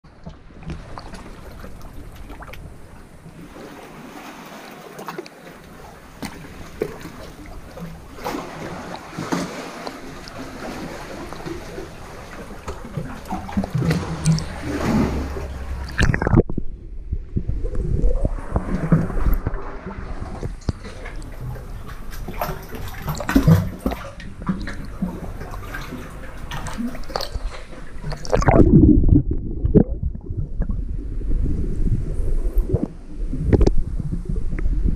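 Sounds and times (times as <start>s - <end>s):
sea water lapping and splashing: 0.0s - 16.7s, 17.5s - 34.9s
muffled underwater sound: 9.8s - 34.9s.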